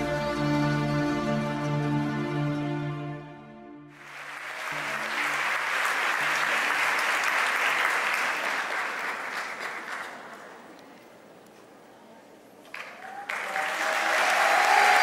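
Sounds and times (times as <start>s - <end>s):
audience applauding: 3.9s - 10.8s, 12.6s - 15.0s.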